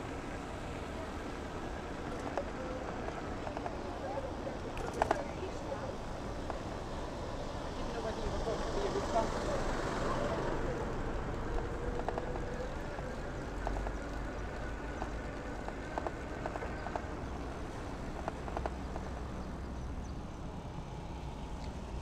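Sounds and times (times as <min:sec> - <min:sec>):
bicycle wind and tyre rumble: 0:00.0 - 0:22.0
bicycle clicks and rattles: 0:04.6 - 0:05.4.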